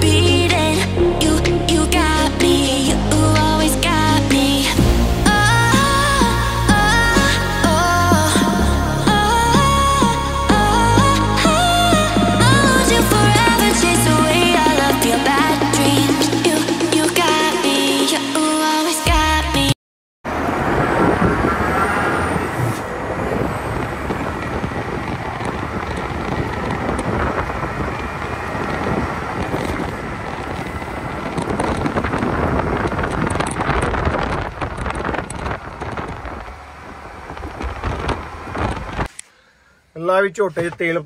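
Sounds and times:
truck engine rumble: 0.0s - 17.6s, 20.3s - 39.2s
tyre and wind noise: 20.3s - 39.2s.

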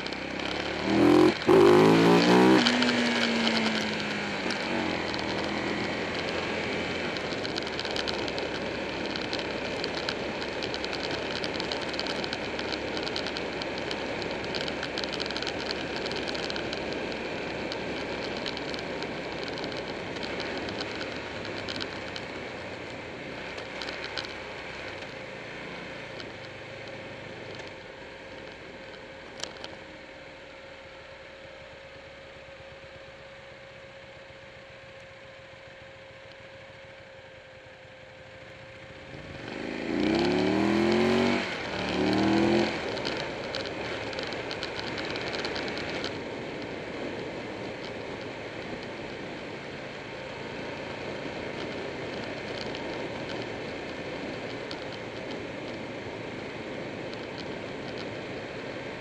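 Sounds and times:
sharp click: 0.0s - 22.3s
motorcycle engine running: 0.0s - 59.0s.

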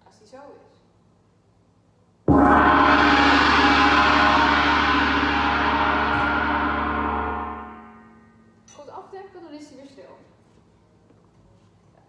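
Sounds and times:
gong struck with mallet: 2.3s - 8.3s.

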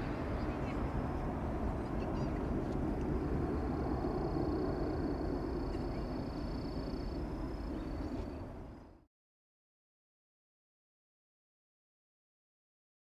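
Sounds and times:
jet engines rumbling: 0.0s - 9.0s.

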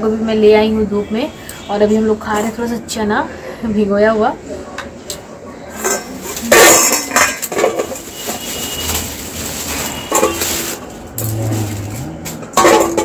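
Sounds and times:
plastic bag crinkling: 6.1s - 12.5s.

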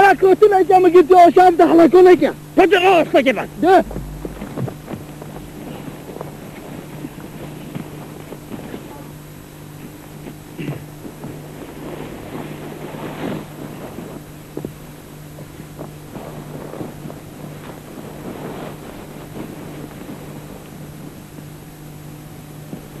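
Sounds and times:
steady low hum: 0.0s - 23.0s
wind-like noise: 0.7s - 23.0s
rustles and knocks in brush: 3.8s - 8.9s.

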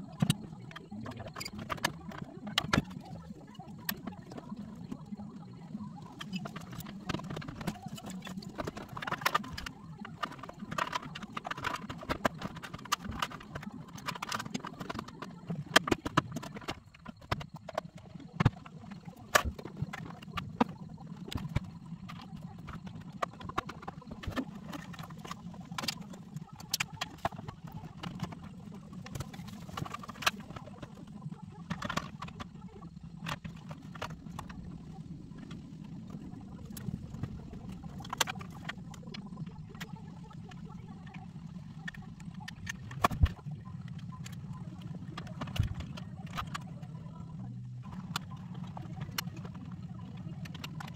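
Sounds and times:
clicks and knocks on plastic panels: 6.2s - 30.6s.

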